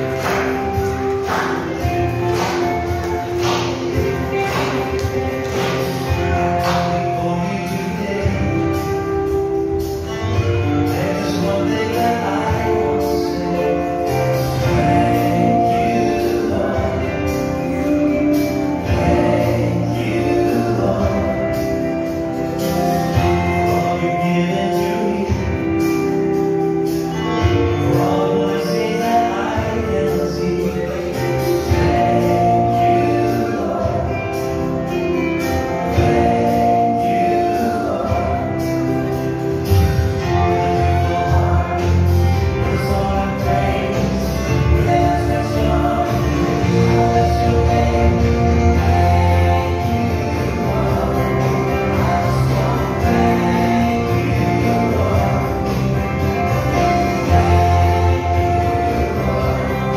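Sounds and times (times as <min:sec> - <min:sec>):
song with singing: 0:00.0 - 0:59.9.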